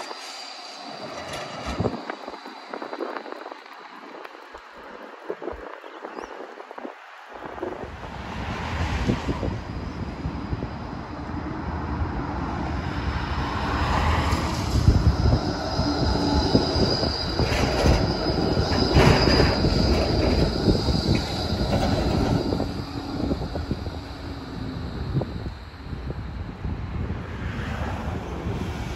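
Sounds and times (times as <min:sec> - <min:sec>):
tram wheels rumbling on rails: 0:00.0 - 0:28.9
high-pitched wheel squeal: 0:13.5 - 0:26.4
wheels clicking over rail joints: 0:14.2 - 0:25.7.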